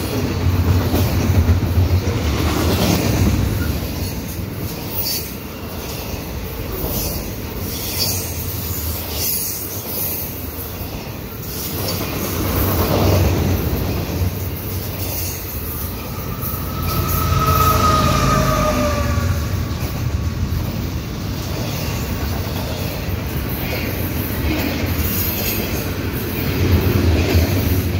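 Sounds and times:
freight train wheels clattering: 0.0s - 27.9s
high wheel squeal: 14.7s - 20.6s.

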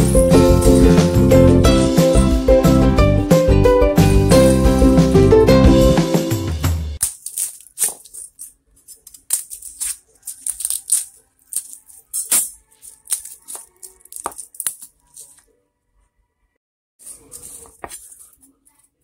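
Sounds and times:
garlic skins crackling and rustling: 7.0s - 15.4s, 17.0s - 18.8s.

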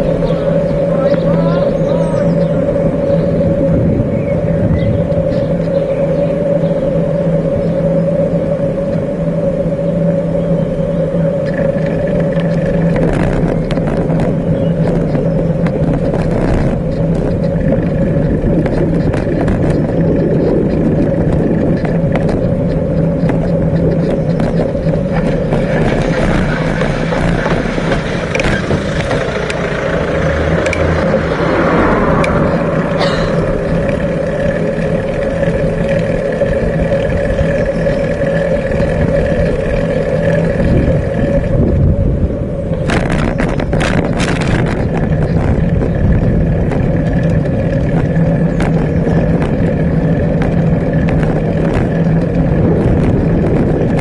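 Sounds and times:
bicycle rolling rumble: 0.0s - 54.0s
rattling clicks over bumps: 11.1s - 54.0s.

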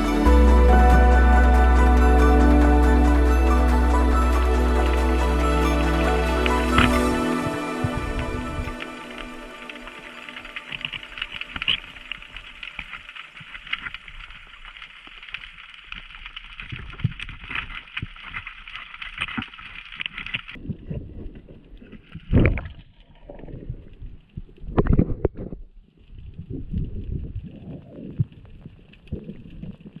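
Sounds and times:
underwater crackle of clicks: 8.7s - 20.6s, 21.8s - 26.9s.

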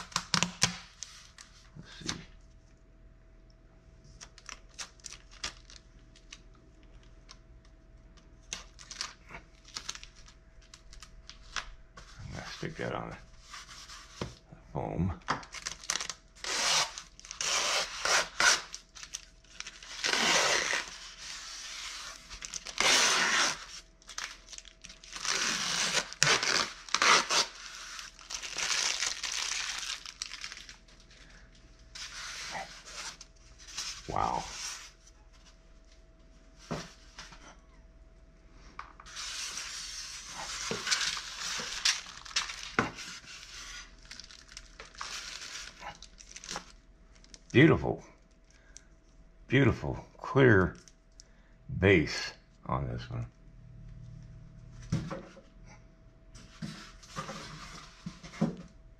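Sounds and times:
plastic wrapping crinkling: 4.1s - 7.4s, 8.4s - 12.8s, 15.4s - 36.0s, 39.0s - 47.6s.

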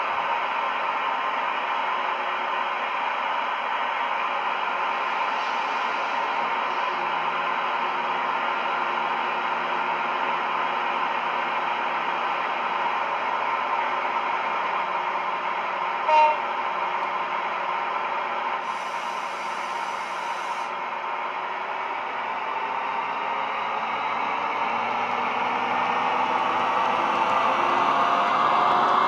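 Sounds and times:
diesel locomotive engine idling: 0.0s - 26.7s
short horn toot: 16.0s - 16.4s
high hiss: 18.6s - 20.7s.

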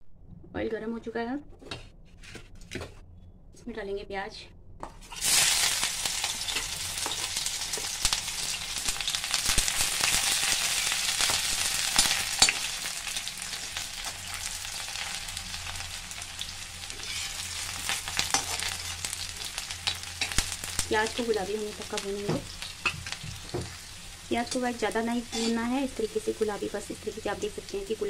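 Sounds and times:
onion sizzling in hot oil: 5.0s - 28.0s
metal spoon scraping a pan: 16.8s - 20.8s, 24.4s - 25.8s.

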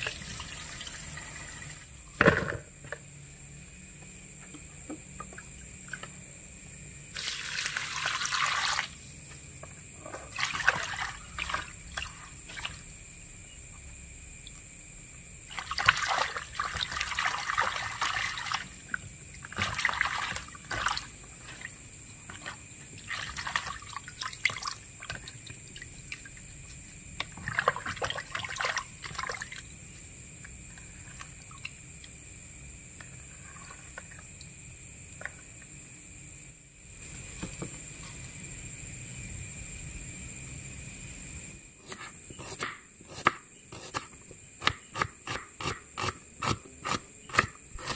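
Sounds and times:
water splashing in a basin: 0.0s - 2.0s, 7.1s - 13.0s, 15.5s - 29.8s, 31.0s - 32.2s.

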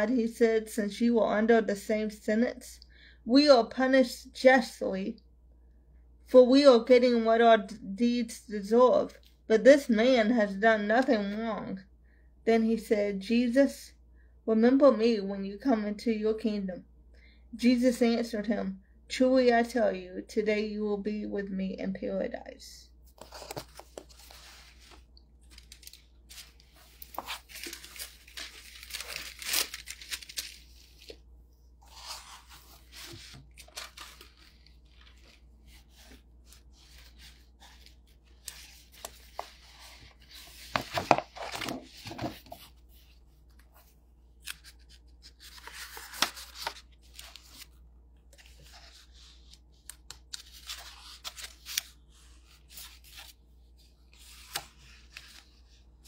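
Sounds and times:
paper rustling and crinkling: 23.1s - 31.2s, 31.8s - 55.8s.

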